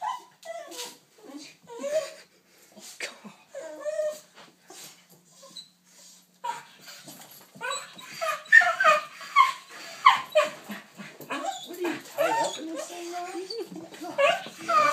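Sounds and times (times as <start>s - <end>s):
dog whining: 6.4s - 6.8s, 7.5s - 14.9s
dog yelping: 7.6s - 10.7s, 11.3s - 14.9s.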